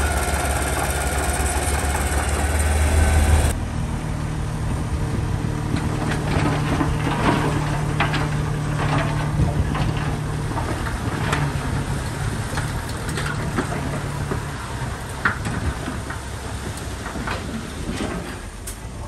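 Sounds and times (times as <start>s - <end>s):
bulldozer diesel engine running: 0.0s - 19.0s.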